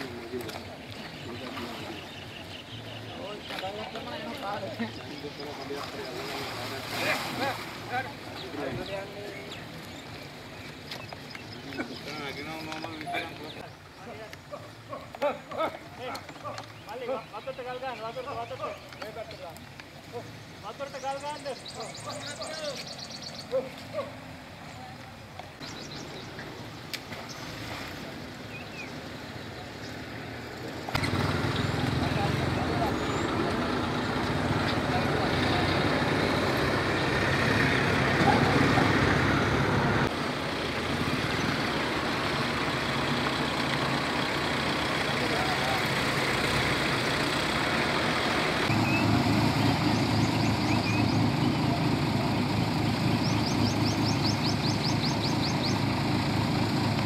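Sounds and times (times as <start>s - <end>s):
bird chirping: 0.0s - 6.7s, 8.1s - 27.6s, 28.4s - 34.0s, 48.6s - 51.8s, 53.0s - 55.9s
voices: 0.0s - 57.0s
water splashing and rushing: 5.5s - 10.9s, 26.4s - 32.6s.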